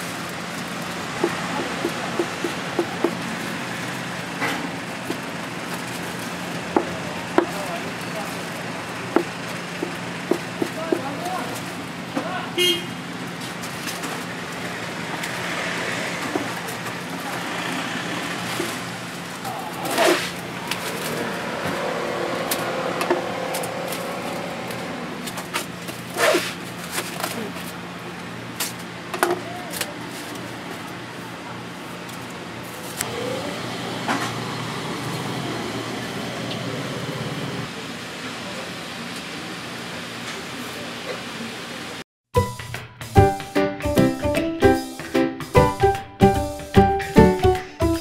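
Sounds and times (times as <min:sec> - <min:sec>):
motor vehicle passing: 0:00.0 - 0:26.9
street noise: 0:00.0 - 0:48.0.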